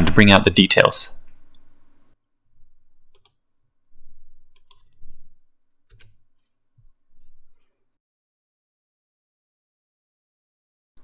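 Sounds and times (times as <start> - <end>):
mouse and keyboard clicks: 4.5 - 5.3.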